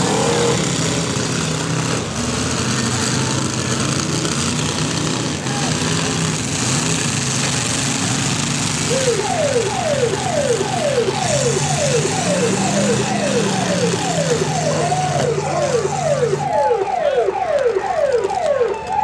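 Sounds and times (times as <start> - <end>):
car engines running: 0.0 - 19.0
siren-style alarm sweeps: 8.9 - 19.0.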